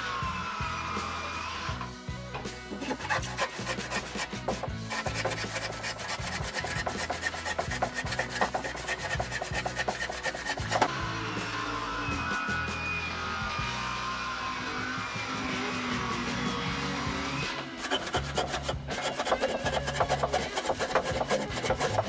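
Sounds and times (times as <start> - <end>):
handsaw cutting wood: 2.7 - 10.9, 17.5 - 22.0.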